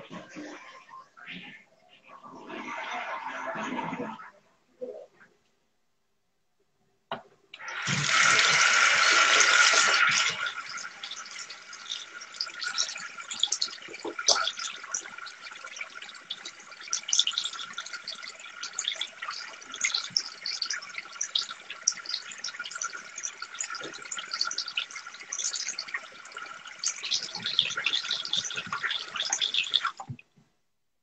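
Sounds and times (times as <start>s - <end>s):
water running: 7.6s - 30.4s.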